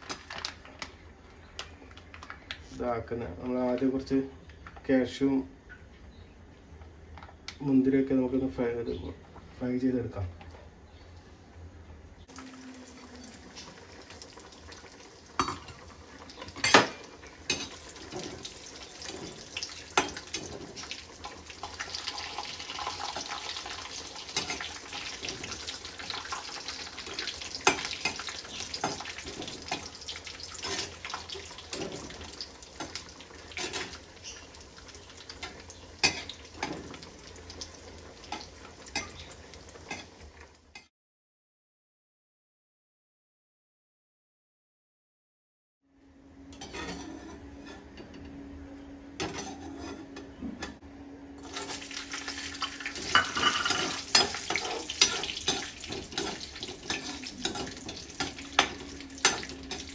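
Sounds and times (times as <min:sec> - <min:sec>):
nuts frying in a pan: 0:12.3 - 0:40.7, 0:51.4 - 0:59.9
spoon scraping a pan: 0:46.6 - 0:48.2, 0:49.2 - 0:50.3, 0:53.0 - 0:59.9.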